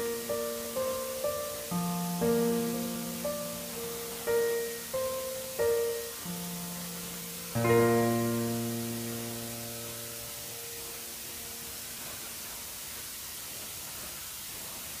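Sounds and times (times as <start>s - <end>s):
sustained piano chord: 0.0s - 11.8s
steady hiss: 0.0s - 15.0s.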